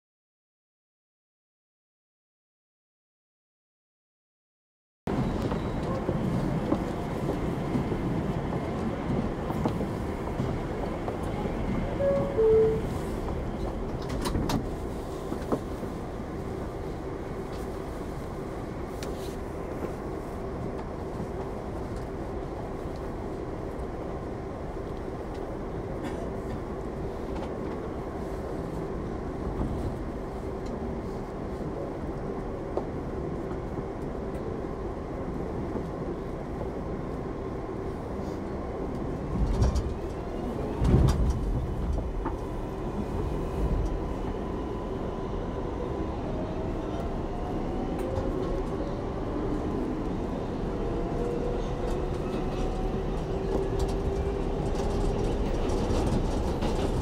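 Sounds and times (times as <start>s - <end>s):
train knocks and rattles: 5.1s - 16.4s, 38.8s - 44.8s, 50.8s - 57.0s
subway train rumbling: 5.1s - 57.0s.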